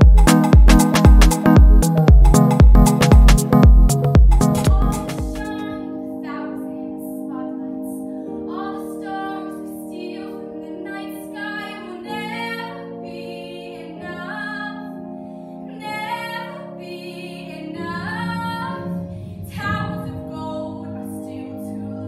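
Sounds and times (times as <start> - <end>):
held accompaniment chords: 0.0 - 22.0
woman singing: 4.4 - 15.0, 15.7 - 22.0.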